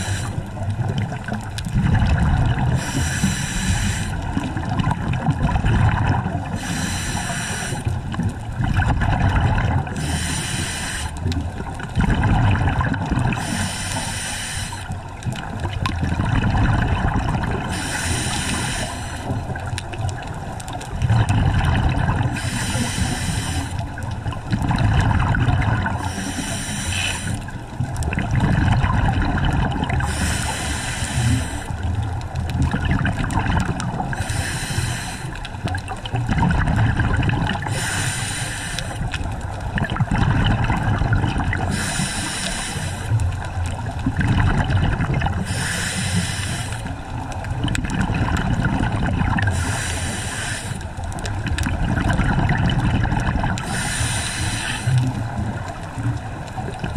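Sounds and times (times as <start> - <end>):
regulator inhale hiss: 0.0 - 0.5, 2.7 - 4.2, 6.5 - 8.0, 10.0 - 11.2, 13.3 - 15.0, 17.7 - 19.6, 22.3 - 24.0, 26.0 - 27.5, 30.0 - 31.9, 34.1 - 35.5, 37.6 - 39.1, 41.7 - 43.2, 45.4 - 47.0, 49.5 - 51.0, 53.6 - 55.2
exhaled bubbles bubbling: 0.0 - 56.9.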